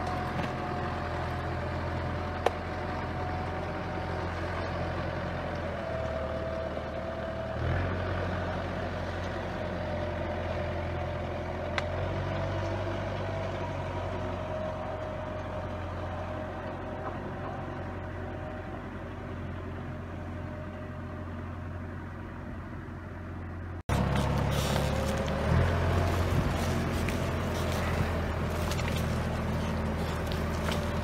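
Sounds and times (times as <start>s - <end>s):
tractor diesel engine running: 0.0s - 31.0s
log being dragged: 23.9s - 31.0s.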